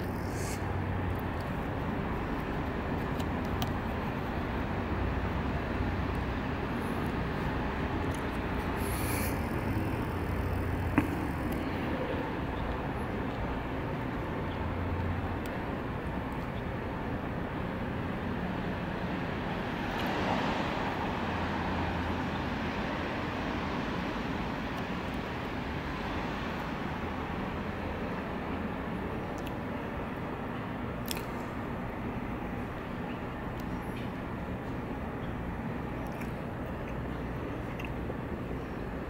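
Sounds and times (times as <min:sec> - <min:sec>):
distant city traffic: 0:00.0 - 0:39.0
low drone: 0:03.8 - 0:13.9.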